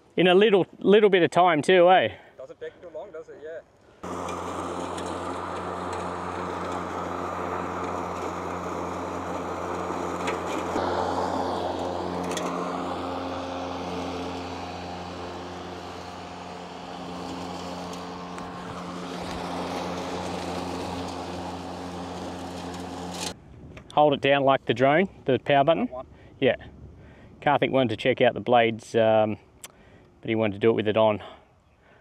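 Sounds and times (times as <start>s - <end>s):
electric lawn mower humming: 4.0s - 23.4s
grass being cut: 4.0s - 23.4s.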